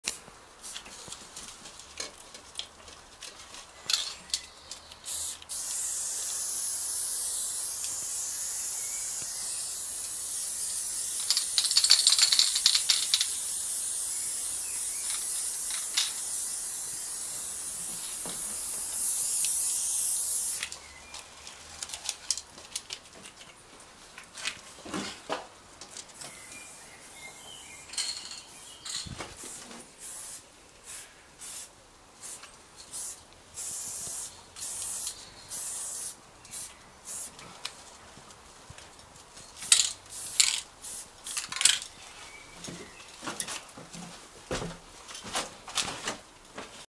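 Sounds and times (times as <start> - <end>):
spray paint can hissing: 0.1 - 1.1, 4.9 - 20.8, 27.9 - 37.4, 39.6 - 41.9.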